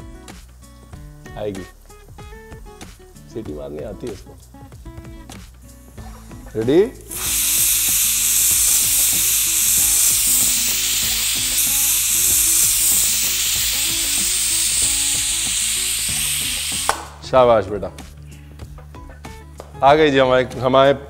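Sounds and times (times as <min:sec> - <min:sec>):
pressure cooker whistle hissing: 0:07.1 - 0:17.2.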